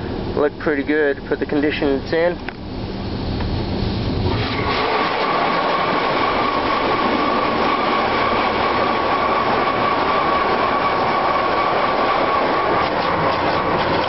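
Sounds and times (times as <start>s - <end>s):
thin steady whine: 0.0s - 14.0s
water spraying on car: 2.9s - 14.0s.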